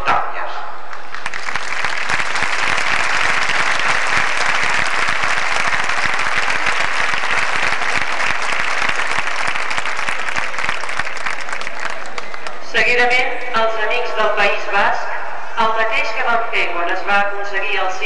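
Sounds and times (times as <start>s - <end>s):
audience applauding: 0.9s - 12.6s.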